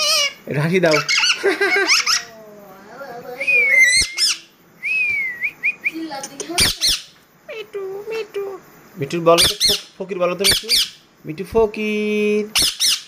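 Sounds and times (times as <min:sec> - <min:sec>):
parakeet whistled calls: 0:00.0 - 0:02.3, 0:03.4 - 0:07.2, 0:09.4 - 0:11.0, 0:12.5 - 0:13.0
parakeet chirps: 0:00.0 - 0:02.4, 0:03.3 - 0:04.8, 0:05.4 - 0:08.3, 0:09.3 - 0:11.1, 0:12.4 - 0:13.0
parakeet squawk: 0:00.0 - 0:02.4, 0:03.4 - 0:04.5, 0:06.5 - 0:07.2, 0:09.4 - 0:11.1, 0:12.5 - 0:13.0.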